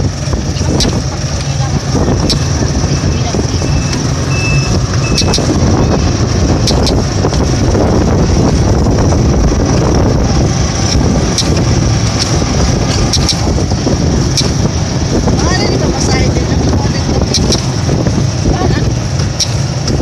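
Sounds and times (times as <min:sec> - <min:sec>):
motorcycle engine rumble: 0:00.0 - 0:20.0
road and wind noise: 0:00.0 - 0:20.0
sharp clicks: 0:00.5 - 0:01.1, 0:02.1 - 0:02.6, 0:03.7 - 0:05.6, 0:06.6 - 0:07.4, 0:10.8 - 0:13.7, 0:14.3 - 0:14.6, 0:17.2 - 0:17.8, 0:19.2 - 0:20.0.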